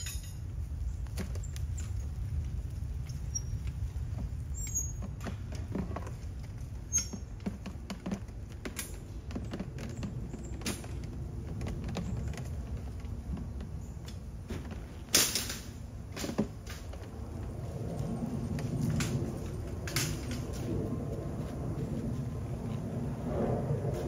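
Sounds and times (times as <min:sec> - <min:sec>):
knocks creaks and rustles: 0:00.0 - 0:23.2
steady low rumble: 0:00.0 - 0:24.0.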